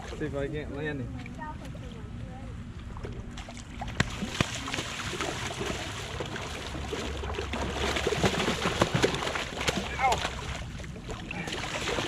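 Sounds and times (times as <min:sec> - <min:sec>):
ray splashing in water: 0:03.4 - 0:12.0.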